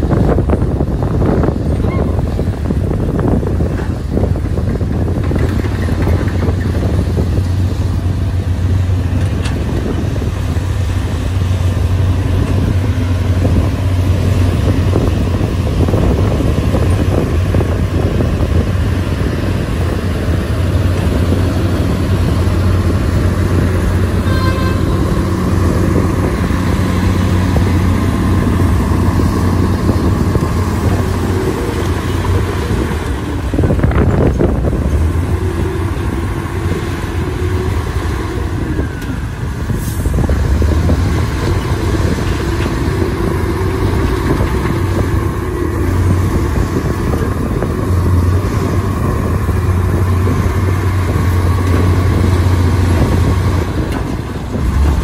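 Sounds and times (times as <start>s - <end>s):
diesel engines droning: 0.0s - 55.0s
short tone: 24.2s - 25.2s.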